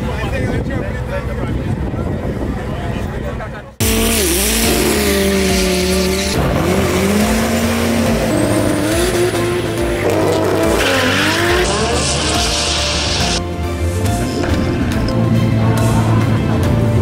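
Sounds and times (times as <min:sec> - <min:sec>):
race car engines revving: 0:03.8 - 0:17.0
tyres squealing: 0:10.0 - 0:13.4.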